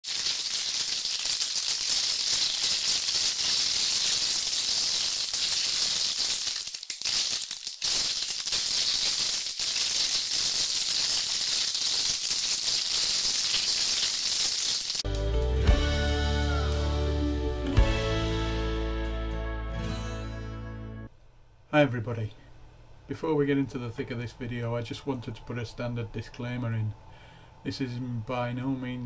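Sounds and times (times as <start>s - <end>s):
high hiss with fine rattle: 0.2s - 14.5s.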